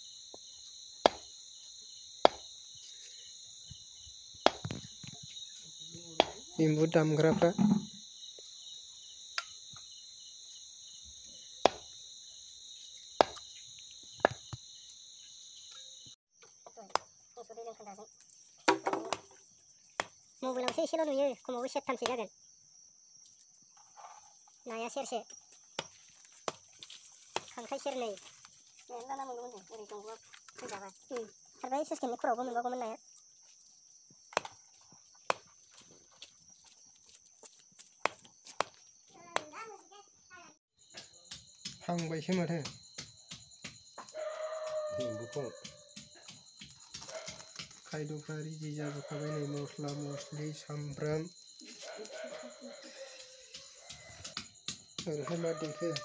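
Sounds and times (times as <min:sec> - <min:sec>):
crickets chirping: 0:00.0 - 0:56.0
knife chopping meat on wood: 0:41.0 - 0:47.7, 0:53.8 - 0:56.0.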